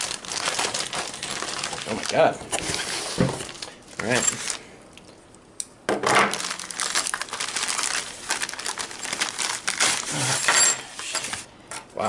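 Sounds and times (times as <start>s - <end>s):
papers rustling: 0.0s - 4.6s, 6.3s - 11.5s
plastic mailer crinkling: 0.0s - 4.6s, 6.3s - 10.6s.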